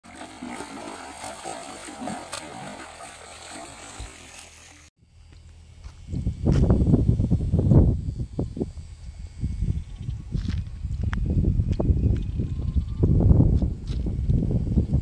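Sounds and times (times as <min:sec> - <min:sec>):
fish splashing water: 0:00.0 - 0:04.9.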